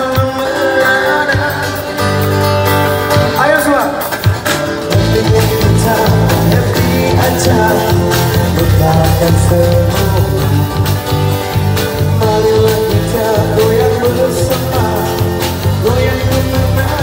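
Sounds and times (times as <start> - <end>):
man singing: 0.0 - 2.4, 3.2 - 17.0
amplified guitars: 0.0 - 17.0
drum kit beat: 0.0 - 17.0
walking bass line: 4.3 - 17.0.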